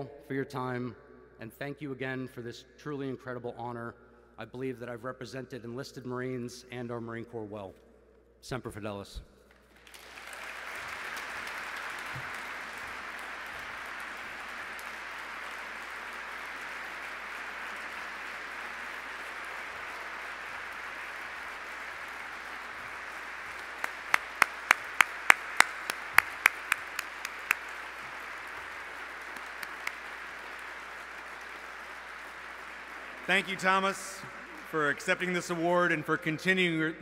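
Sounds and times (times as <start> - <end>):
loud sharp claps close by: 9.5 - 35.8
audience applauding: 9.6 - 35.9.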